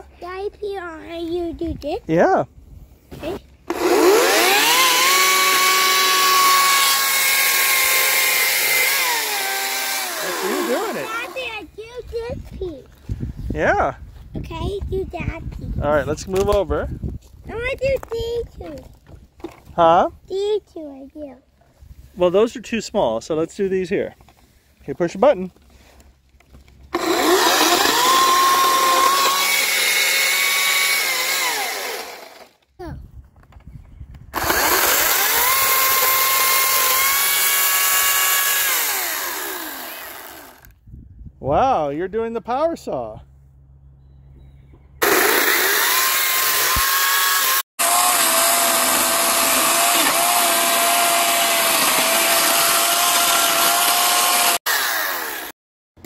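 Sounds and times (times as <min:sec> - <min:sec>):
electric chainsaw whine: 0:03.7 - 0:11.4, 0:26.9 - 0:32.6, 0:34.3 - 0:40.7, 0:45.0 - 0:55.6.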